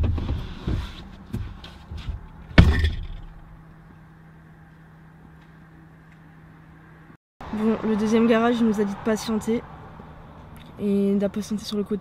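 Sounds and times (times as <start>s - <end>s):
low hum: 1.0s - 7.8s.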